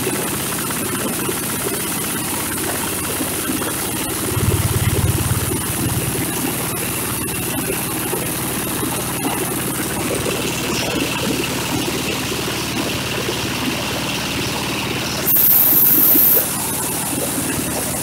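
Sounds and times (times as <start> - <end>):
small diesel engine running: 0.0 - 18.0
loud high hiss: 15.3 - 16.6.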